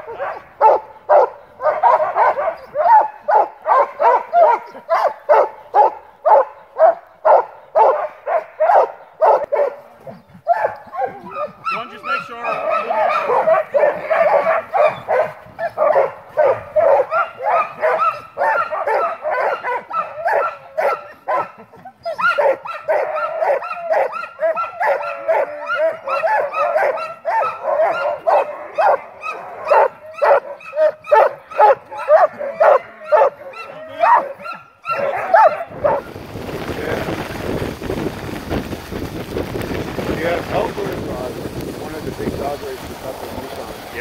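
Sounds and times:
sled dogs barking and yelping: 0.0 - 38.7
wind rushing on microphone: 35.0 - 44.0.

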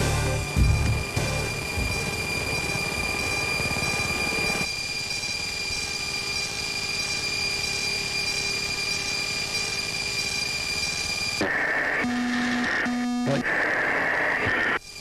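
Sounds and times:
high-pitched electronic whine: 0.0 - 15.0
pulsing high tone: 0.0 - 15.0
cockpit background noise: 11.1 - 15.0.

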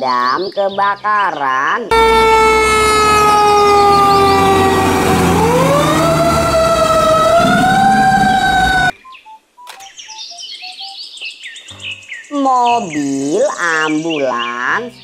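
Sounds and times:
fire engine siren: 1.9 - 8.9
low engine rumble: 1.9 - 8.9.

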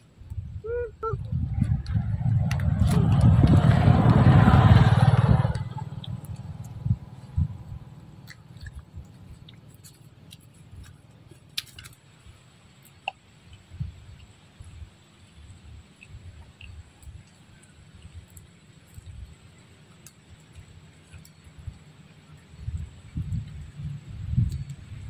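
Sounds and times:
loud low rumble: 1.2 - 8.2
monkey chewing and handling food: 1.6 - 25.0.

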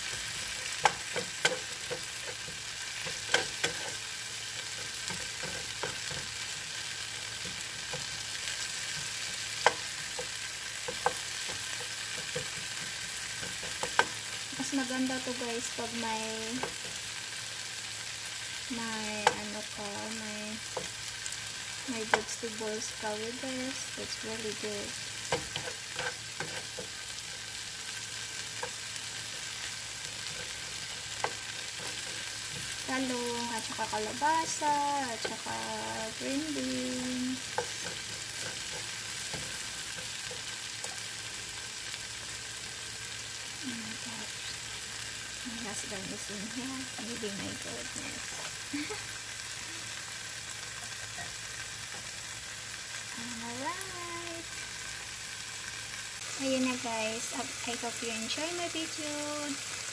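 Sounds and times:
spatula scraping a pan: 0.0 - 14.5, 24.6 - 32.9, 36.1 - 41.1
food sizzling in a frying pan: 0.0 - 59.9.

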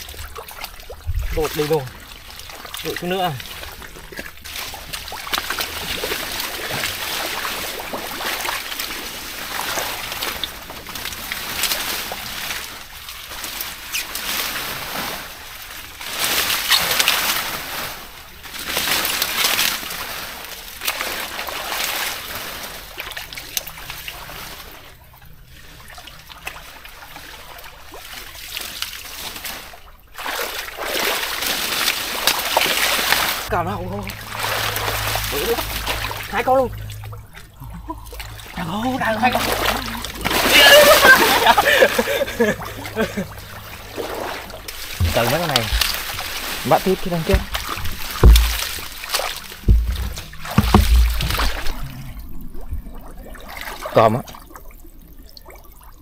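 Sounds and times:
pond water splashing: 0.0 - 56.0.

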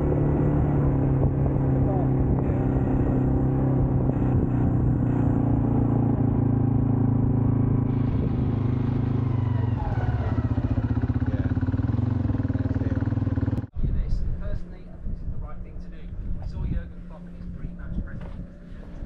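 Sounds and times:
quad bike engine running: 0.0 - 13.7.

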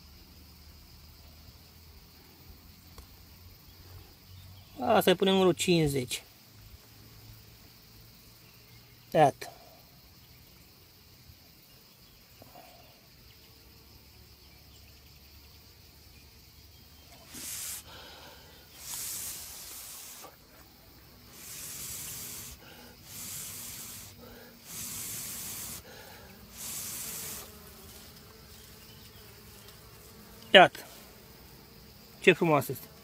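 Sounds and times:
faint hum of honeybees: 0.0 - 33.0
hissing puffs of breath: 17.2 - 20.4, 21.3 - 27.6.

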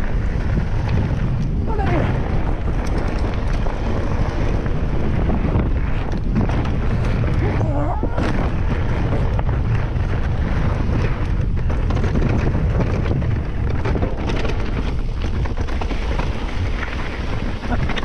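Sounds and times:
bike tyres on rough trail: 0.0 - 18.0
wind buffeting microphone: 0.0 - 18.0
bike clicks and knocks: 2.3 - 7.6, 8.2 - 18.0.

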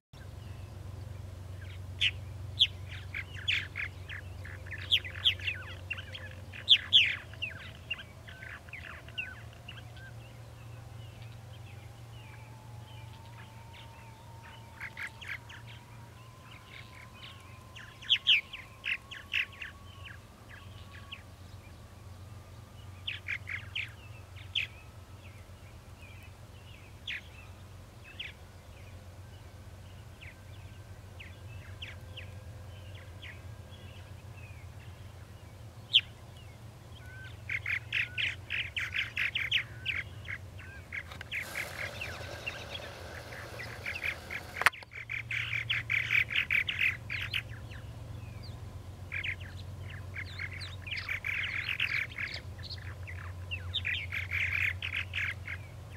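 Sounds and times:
steady low hum: 0.2 - 55.9
birds chirping and chattering: 1.6 - 10.2, 37.5 - 47.8, 48.4 - 55.9
rushing hiss: 41.3 - 44.7.

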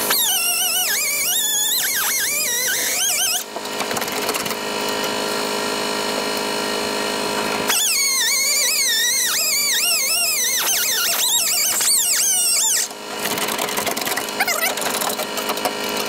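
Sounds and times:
air cut-off tool cutting steel: 0.0 - 3.5, 7.7 - 13.4.

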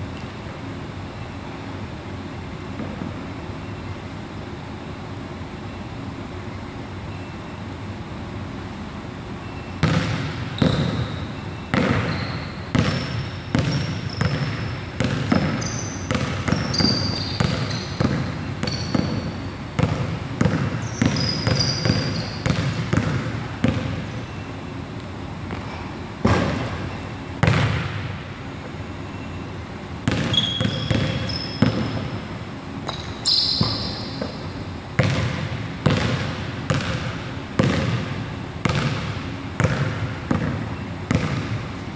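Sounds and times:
sneakers squeaking: 9.3 - 41.9
basketball bouncing on wooden floor: 9.8 - 24.0, 26.2 - 26.8, 27.4 - 28.0, 30.1 - 32.2, 35.0 - 41.6.

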